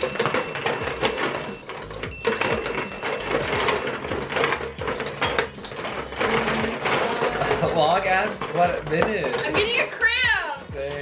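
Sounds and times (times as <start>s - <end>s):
chopsticks rattling plastic balls: 0.0s - 10.1s.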